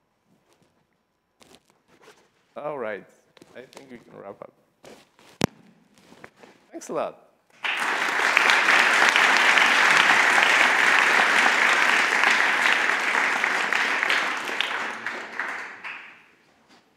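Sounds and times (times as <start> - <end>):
audience applauding: 7.6 - 16.4.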